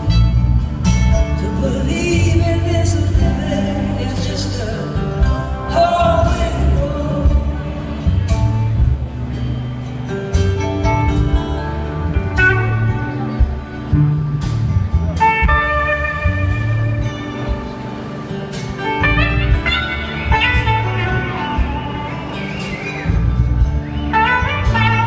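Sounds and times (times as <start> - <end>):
bass: 0.0 - 25.0
drums: 0.0 - 25.0
strummed acoustic guitar: 0.0 - 25.0
electric slide guitar: 6.5 - 25.0.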